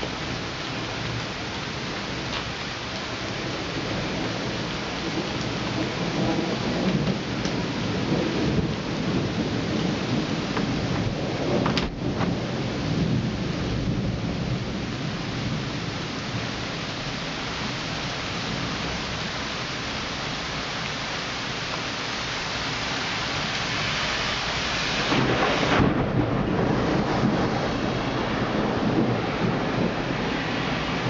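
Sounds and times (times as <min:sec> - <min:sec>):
thunder rumble: 0:00.0 - 0:16.8, 0:24.8 - 0:31.0
heavy rain: 0:00.0 - 0:31.0
van tyres on wet street: 0:00.0 - 0:31.0.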